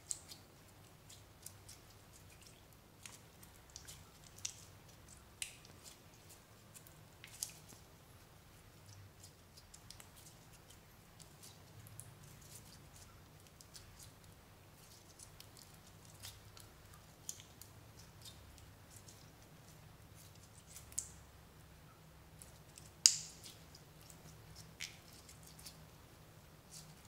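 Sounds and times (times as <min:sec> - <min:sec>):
sharp slime pop: 0:23.0 - 0:23.4.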